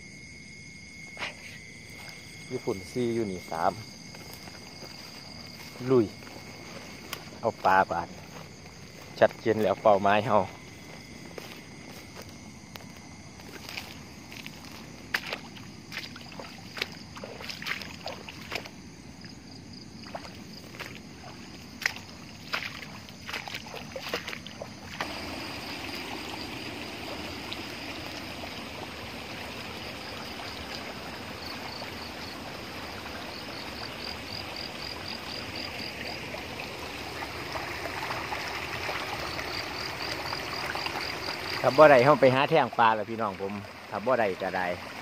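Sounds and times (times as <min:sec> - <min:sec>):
flowing stream water: 0:01.9 - 0:45.0
footsteps through dry grass: 0:03.8 - 0:10.0, 0:10.6 - 0:18.7, 0:20.1 - 0:24.5.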